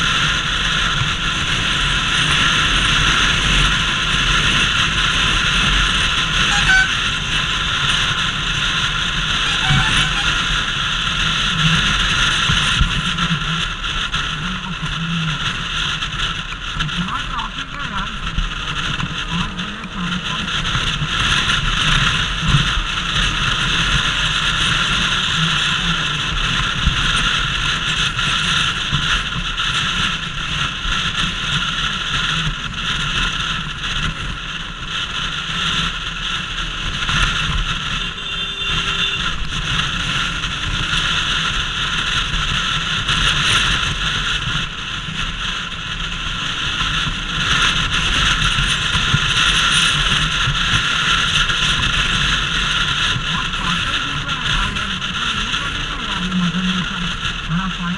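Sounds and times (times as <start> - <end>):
motorcycle engine running: 0.0 - 57.9
wind rushing over camera: 0.0 - 57.9.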